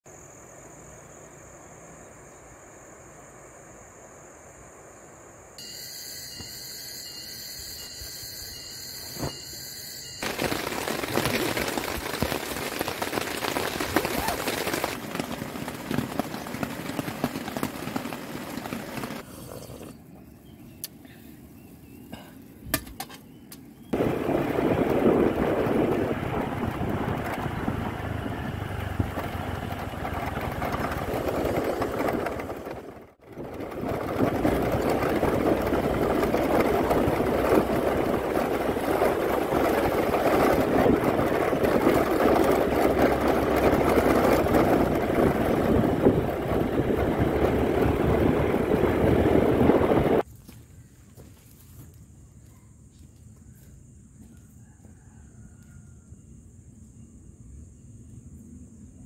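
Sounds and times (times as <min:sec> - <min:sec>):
road noise: 0:00.2 - 0:50.3
motor scooter engine: 0:10.0 - 0:19.9, 0:24.0 - 0:50.2
wind noise: 0:23.9 - 0:50.3.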